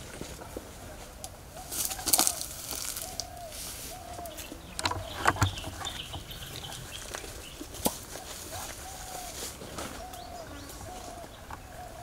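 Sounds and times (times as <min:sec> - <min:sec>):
bird calling: 0:01.3 - 0:12.0
sharp clicks and rustles: 0:04.2 - 0:08.3.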